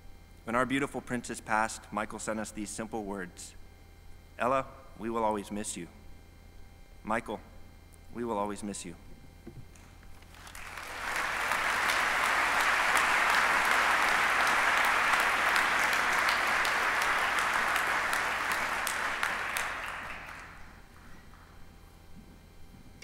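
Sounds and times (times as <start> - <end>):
audience applauding: 10.2 - 21.1.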